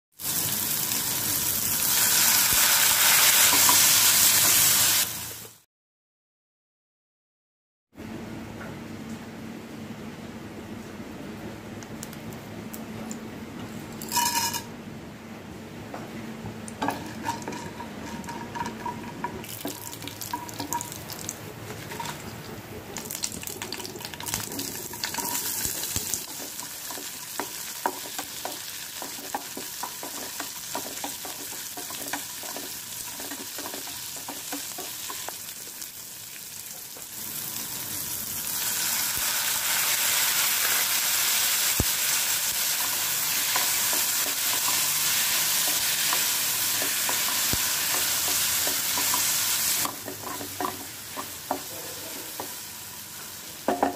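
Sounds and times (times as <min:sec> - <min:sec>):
oil sizzling and crackling: 0:00.1 - 0:05.6, 0:16.7 - 0:53.9
spoon stirring and scraping: 0:16.8 - 0:20.9, 0:24.4 - 0:35.4.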